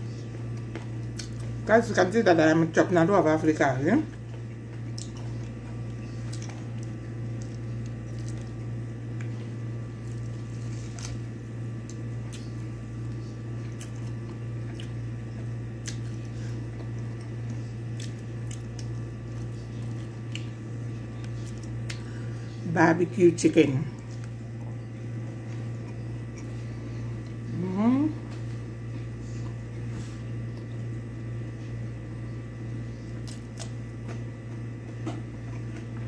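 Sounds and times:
steady low hum: 0.0s - 36.0s
chewing: 0.1s - 1.6s, 4.1s - 22.4s, 24.0s - 27.5s, 33.0s - 36.0s.

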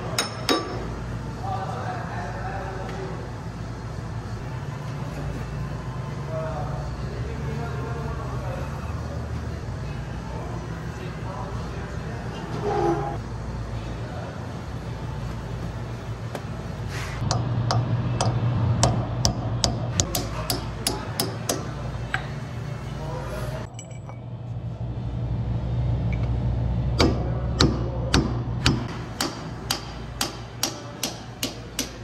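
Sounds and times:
steady low hum: 0.0s - 32.0s
hammer striking steel punch: 17.2s - 21.7s, 27.0s - 32.0s.

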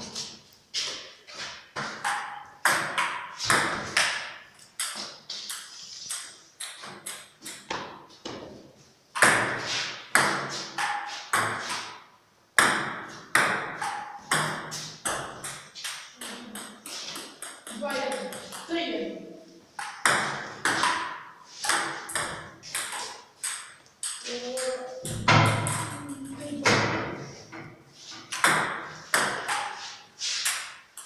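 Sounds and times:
table tennis ball hits: 1.8s - 8.5s, 9.1s - 12.0s, 12.6s - 18.8s, 19.8s - 27.2s, 28.3s - 31.0s.

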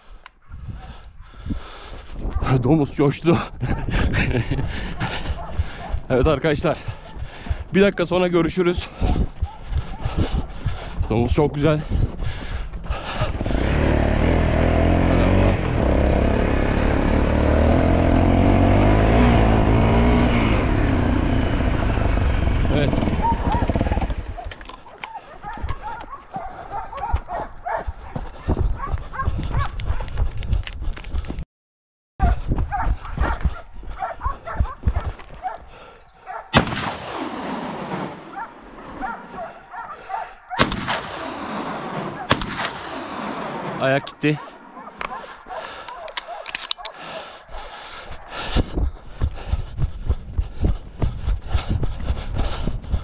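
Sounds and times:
off-road motorcycle engine: 12.9s - 27.0s
shotgun shots echoing: 36.5s - 39.0s, 40.5s - 44.3s.

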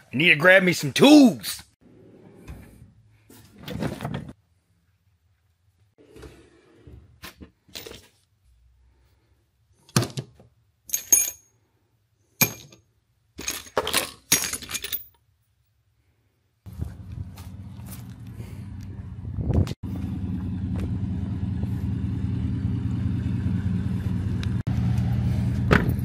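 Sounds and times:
metal tools clinking in drawer: 10.9s - 11.6s, 13.4s - 15.2s.

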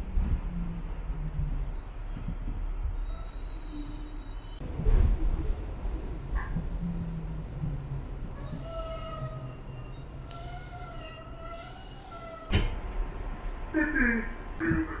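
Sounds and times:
subway train rumbling: 0.0s - 15.0s
wheels and brakes squealing: 1.6s - 4.6s, 7.8s - 12.5s, 14.6s - 15.0s.

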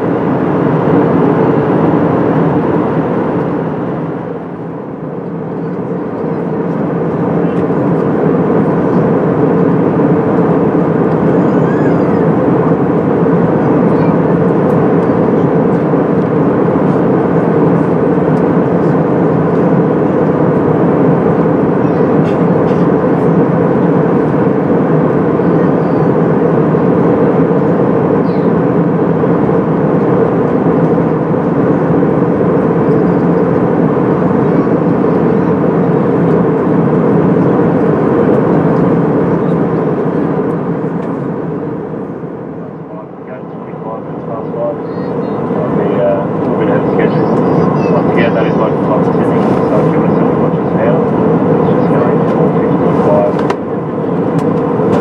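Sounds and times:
jet engine hum: 0.0s - 55.0s.

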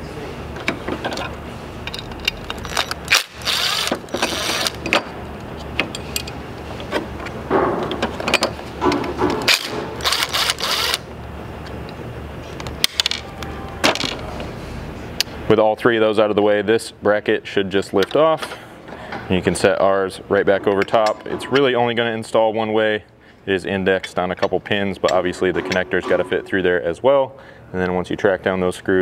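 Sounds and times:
impact driver bursts: 9.5s - 11.0s.

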